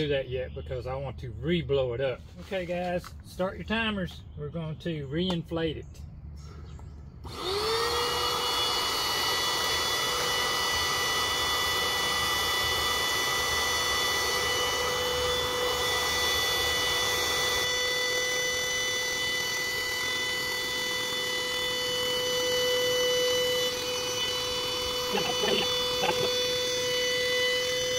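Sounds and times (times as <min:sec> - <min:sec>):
electric air pump humming: 0:06.4 - 0:27.9.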